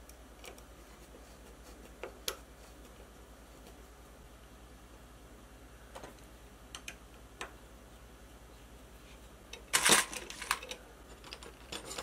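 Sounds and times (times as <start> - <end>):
small parts clicking: 9.5 - 12.0
steel screws rattling in bin: 9.7 - 12.0.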